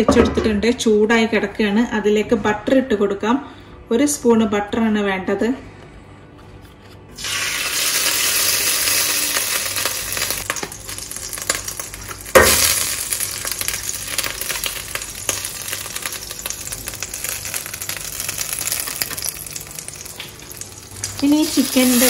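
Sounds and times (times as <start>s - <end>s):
butter sizzling in a pot: 7.2s - 22.0s.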